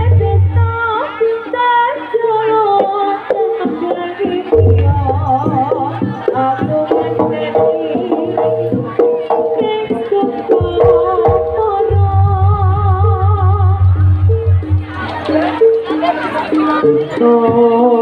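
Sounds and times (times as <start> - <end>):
drum strokes: 3.7 - 17.6.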